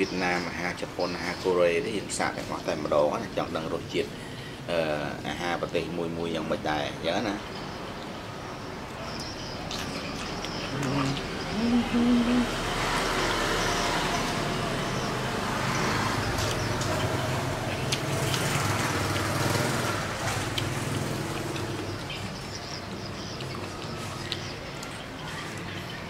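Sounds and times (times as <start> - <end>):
vehicle engine running: 10.8 - 22.8.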